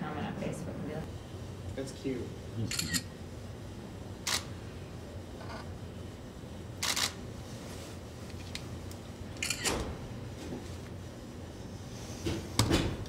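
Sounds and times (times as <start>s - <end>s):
low steady hum: 0.0s - 13.0s
camera shutter clicking: 2.7s - 3.0s, 6.8s - 7.2s, 9.4s - 9.7s.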